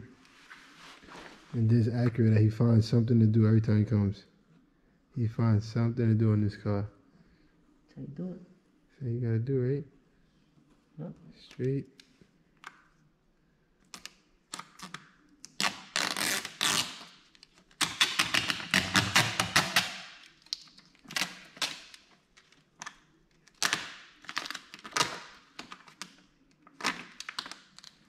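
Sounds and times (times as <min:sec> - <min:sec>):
film crackling and crinkling: 0:13.9 - 0:28.0.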